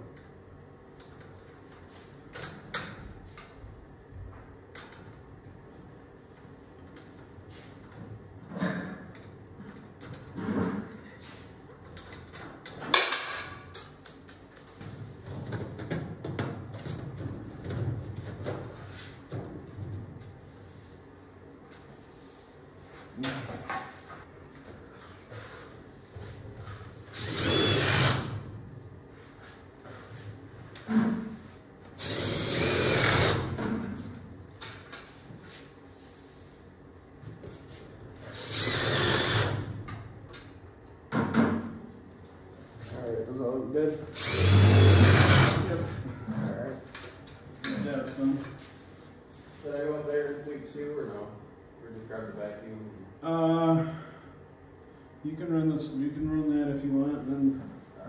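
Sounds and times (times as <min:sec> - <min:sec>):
cordless drill driving screws into metal: 0:27.1 - 0:28.3, 0:32.0 - 0:33.5, 0:38.3 - 0:39.6, 0:44.1 - 0:45.6.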